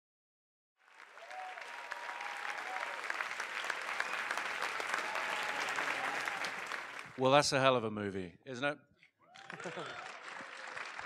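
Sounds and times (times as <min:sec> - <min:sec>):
audience applauding: 0:00.8 - 0:07.2, 0:09.3 - 0:11.0.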